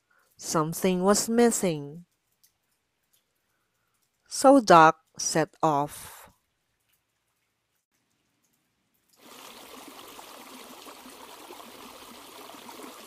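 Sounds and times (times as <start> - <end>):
heavy rain hissing: 9.2 - 13.0.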